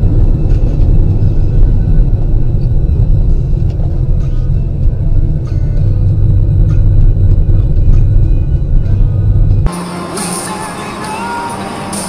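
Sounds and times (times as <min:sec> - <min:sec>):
car road and engine rumble: 0:00.0 - 0:12.0.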